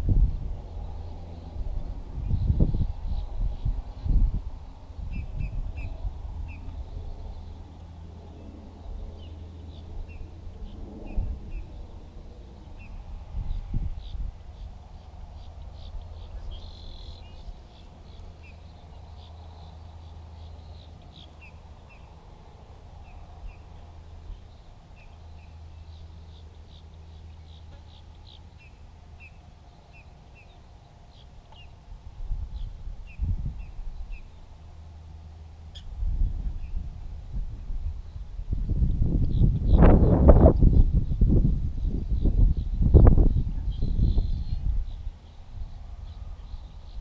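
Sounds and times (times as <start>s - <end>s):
steady low hum: 0.0s - 47.0s
birds chirping: 0.6s - 31.9s, 41.0s - 47.0s.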